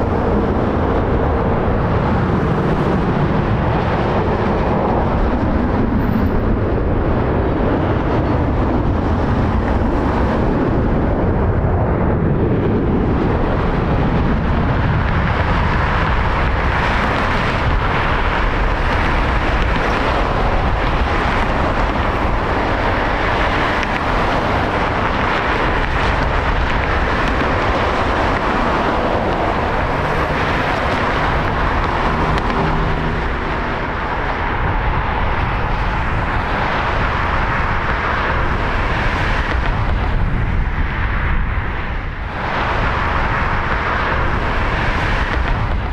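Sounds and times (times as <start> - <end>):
jet engines at takeoff power: 0.0 - 45.9.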